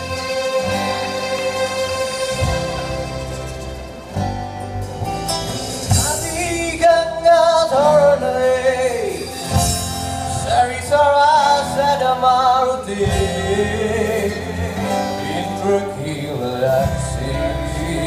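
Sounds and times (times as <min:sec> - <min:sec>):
live band playing: 0:00.0 - 0:18.0
man singing: 0:05.9 - 0:18.0.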